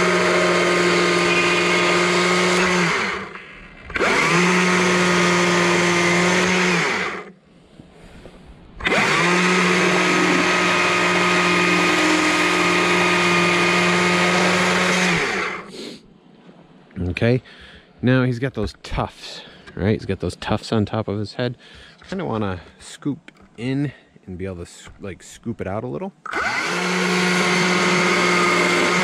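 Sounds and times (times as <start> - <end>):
battery chainsaw whining: 0.0 - 7.3, 8.8 - 15.8, 26.2 - 29.0.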